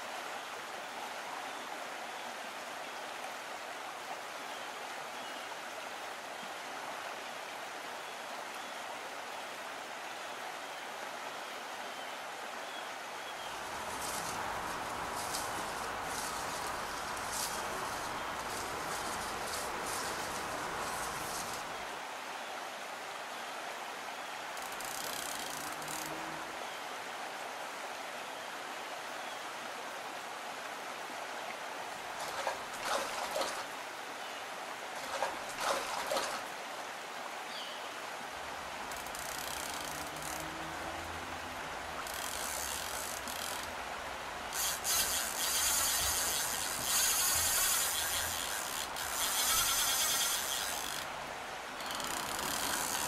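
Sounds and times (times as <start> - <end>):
fast river rushing: 0.0 - 53.0
fishing reel drag ratcheting: 13.6 - 21.8, 24.6 - 26.3, 38.9 - 40.6, 42.0 - 43.8, 44.5 - 51.2, 51.8 - 53.0.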